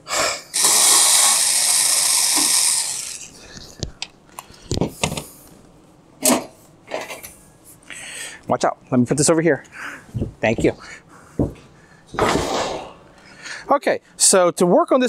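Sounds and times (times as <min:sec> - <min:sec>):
cordless screwdriver running: 0:00.6 - 0:03.3.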